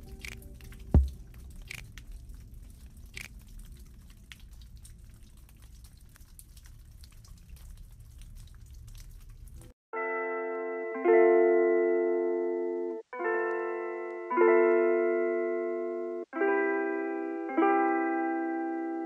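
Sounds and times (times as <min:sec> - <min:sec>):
low thump: 0:01.0 - 0:01.2.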